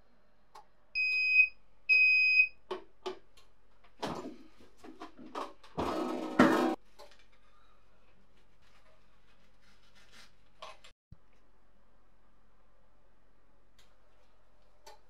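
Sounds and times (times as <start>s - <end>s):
paper rustling as peeled off: 8.4s - 10.9s.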